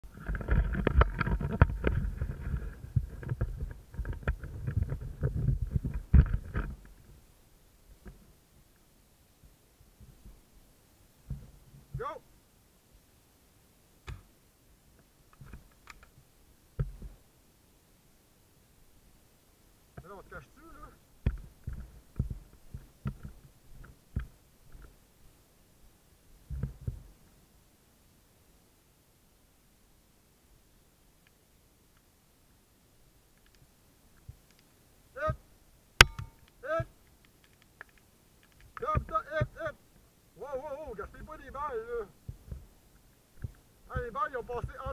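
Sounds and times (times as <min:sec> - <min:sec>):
wind rumble: 0:00.0 - 0:07.3
twigs cracking: 0:36.0 - 0:39.8
footfall thumps on forest floor: 0:43.4 - 0:44.9.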